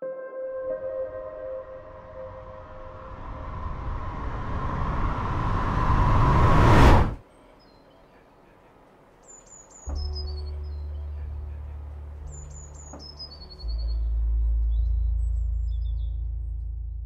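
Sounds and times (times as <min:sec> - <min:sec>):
rising noise riser effect: 0:01.2 - 0:07.2
faint bird chirps: 0:07.3 - 0:16.2.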